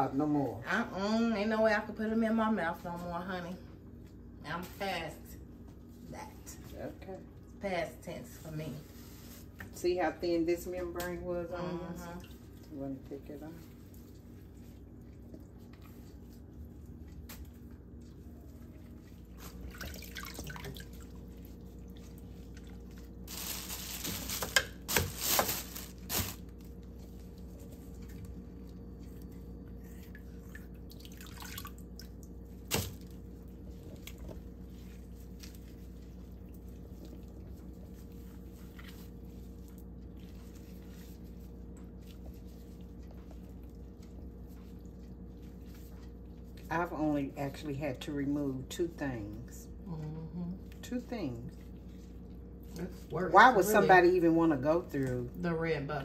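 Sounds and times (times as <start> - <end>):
steady low hum: 0.0 - 56.0
water splashing in sink: 12.0 - 26.4, 30.2 - 41.2.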